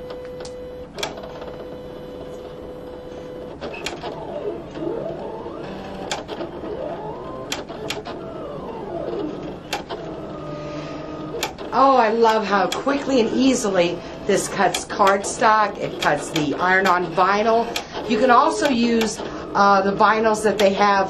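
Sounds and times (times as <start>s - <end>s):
cutting machine motor whine: 0.0s - 21.0s
sharp clicks: 5.5s - 6.5s, 7.3s - 8.2s, 11.2s - 13.2s, 14.6s - 19.4s.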